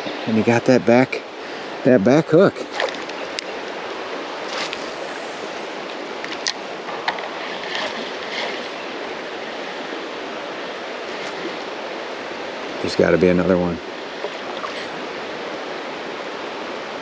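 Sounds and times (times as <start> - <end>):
creek water rushing: 0.0 - 17.0
faint clicks: 2.8 - 4.0.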